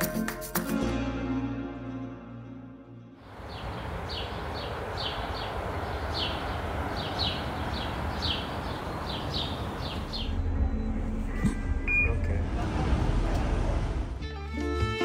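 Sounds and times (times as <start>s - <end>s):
low outdoor rush: 3.2s - 14.5s
small bird chirping: 3.4s - 10.8s.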